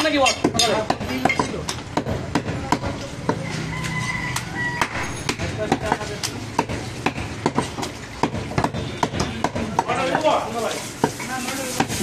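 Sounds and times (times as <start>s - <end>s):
cleaver chopping on wooden block: 4.4s - 10.0s.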